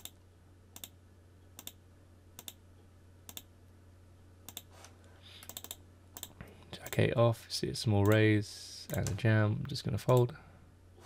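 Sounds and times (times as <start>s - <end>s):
computer mouse clicks: 0.0s - 0.2s, 0.8s - 1.0s, 1.6s - 1.8s, 2.4s - 2.6s, 3.3s - 3.5s, 4.5s - 4.7s, 5.4s - 7.0s
faint steady hum: 0.0s - 11.0s.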